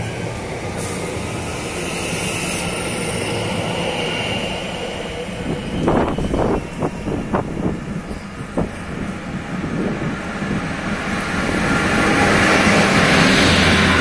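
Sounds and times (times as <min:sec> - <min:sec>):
train wheels rumbling on rail: 0:00.0 - 0:14.0
wind buffeting microphone: 0:05.2 - 0:14.0.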